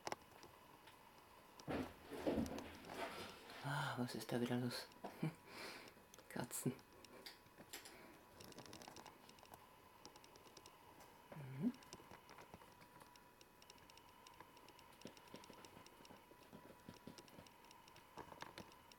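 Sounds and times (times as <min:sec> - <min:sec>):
faint high hum: 0:00.0 - 0:18.9
faint clicking: 0:04.4 - 0:11.1, 0:11.7 - 0:18.9.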